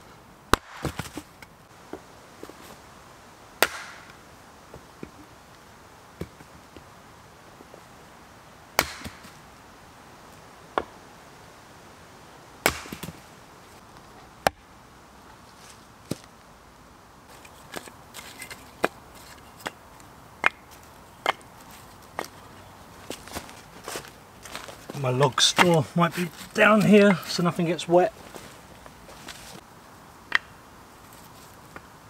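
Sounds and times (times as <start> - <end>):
hatchet chopping wood: 0.5 - 1.2, 3.6 - 4.2, 8.8 - 9.3, 12.6 - 13.2, 20.4 - 21.5, 30.3 - 30.5.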